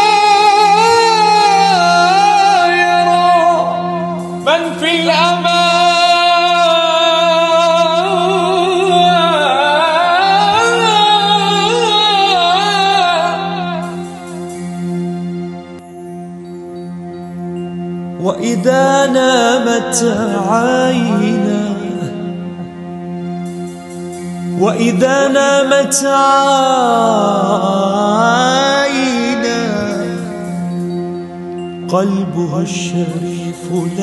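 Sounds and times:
man singing ornamented melisma: 0.0s - 14.7s, 17.6s - 22.8s, 24.4s - 34.0s
held drone chord: 0.0s - 34.0s.

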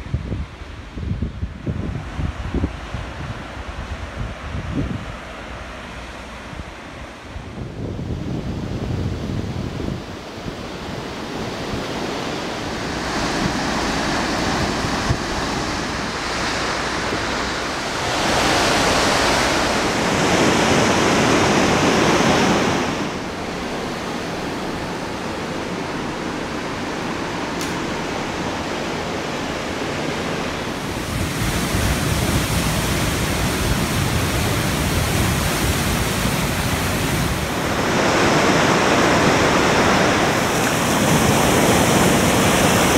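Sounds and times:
wind on microphone: 0.0s - 42.9s
river rapids rushing: 11.0s - 42.9s.

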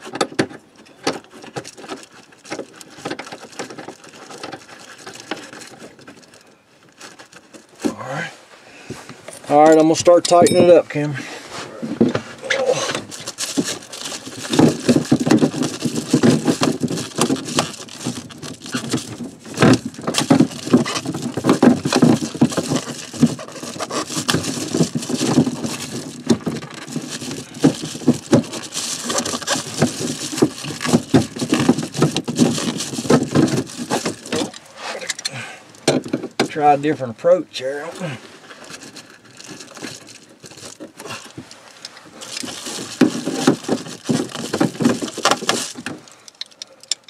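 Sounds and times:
pliers clicking and scraping: 46.2s - 47.0s.

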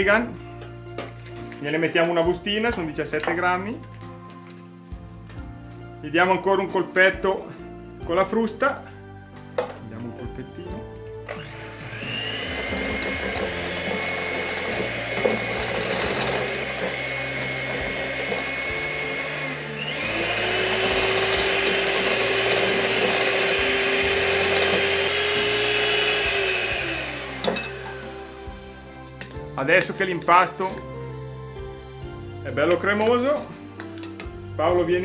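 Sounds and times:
electric mixer motor whine: 11.1s - 29.0s.

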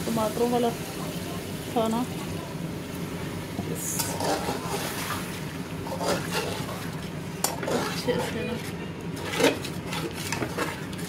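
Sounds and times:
metal spatula scraping pot: 3.8s - 5.2s, 5.8s - 11.0s.

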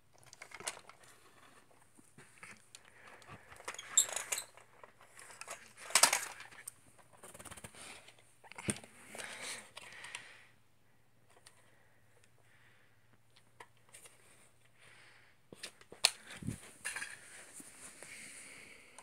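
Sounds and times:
plastic toys clicking and knocking: 0.1s - 1.8s, 2.4s - 8.8s, 15.6s - 17.2s.

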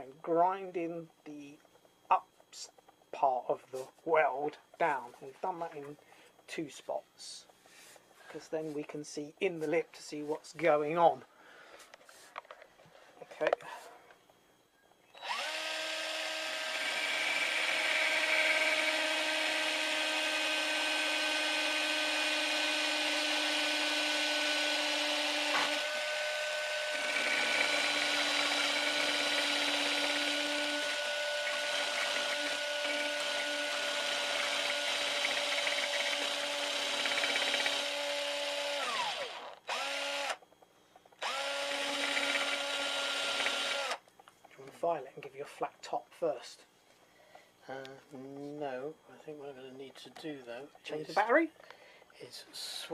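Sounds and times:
drill motor whine: 15.1s - 40.5s, 41.1s - 44.0s.

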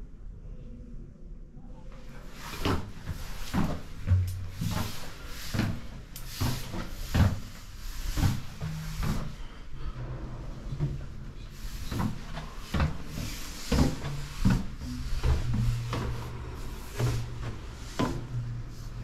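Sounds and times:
footsteps on stone stairs: 2.4s - 9.6s, 11.6s - 18.4s
low hum: 9.4s - 19.0s.

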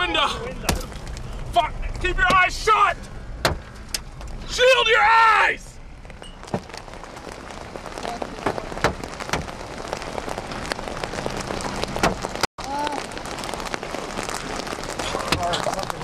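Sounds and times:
wind-driven rain and hail: 0.0s - 16.0s
hailstones pounding a vehicle: 6.0s - 16.0s.

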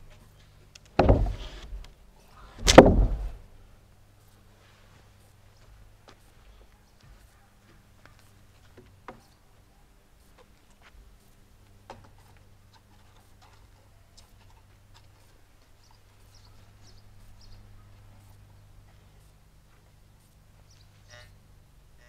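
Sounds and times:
steady low hum: 0.0s - 22.0s
sharp clicks and knocks: 0.7s - 2.0s, 2.6s - 3.4s.

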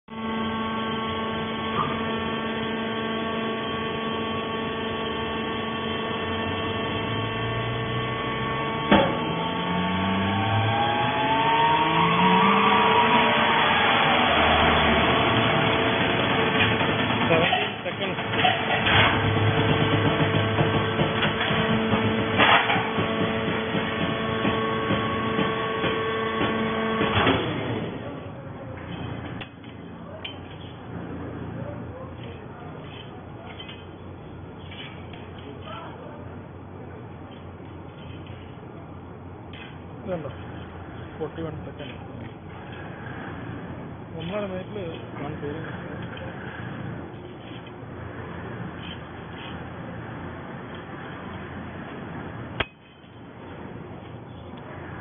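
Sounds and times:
rising whine: 0.1s - 29.9s
baler motor humming: 0.1s - 32.2s
baler clunk: 8.8s - 9.5s, 16.2s - 27.6s.

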